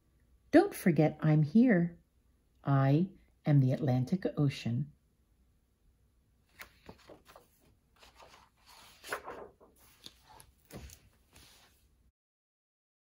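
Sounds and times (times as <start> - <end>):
book pages rustling: 6.4 - 12.0.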